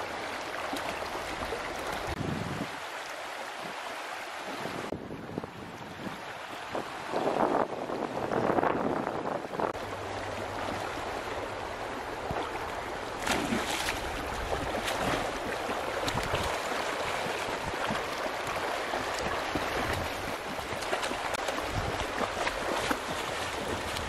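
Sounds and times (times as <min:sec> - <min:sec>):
river water rushing: 0:00.0 - 0:24.0
splashing in water: 0:12.2 - 0:24.0.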